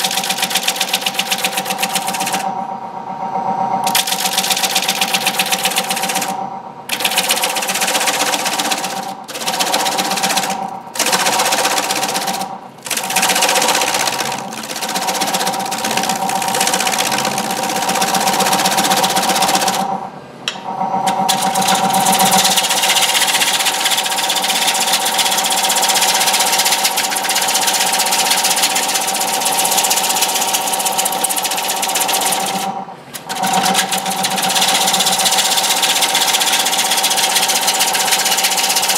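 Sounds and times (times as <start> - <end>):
lathe humming: 0.0 - 38.9
tool rasping cut on wood: 6.9 - 19.9, 21.1 - 38.9.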